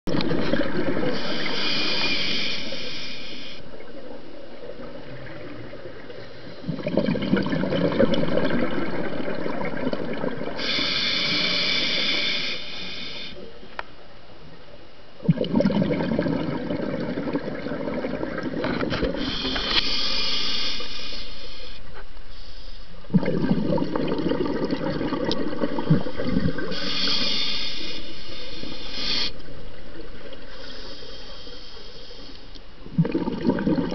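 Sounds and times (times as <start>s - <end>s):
underwater hissing: 1.0s - 3.7s, 10.6s - 13.5s, 19.2s - 22.9s, 25.8s - 29.5s, 30.5s - 32.4s
underwater bubbling rumble: 3.8s - 10.6s, 15.2s - 19.2s, 23.1s - 26.8s, 32.9s - 33.9s.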